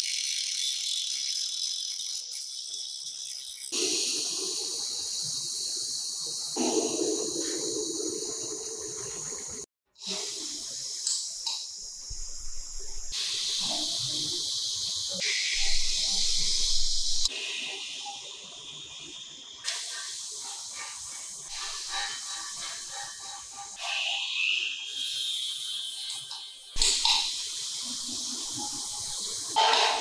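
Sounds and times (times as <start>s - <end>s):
butane torch hissing: 3.7s - 18.3s, 19.0s - 30.0s
powder-coating gun spraying air: 10.0s - 17.3s.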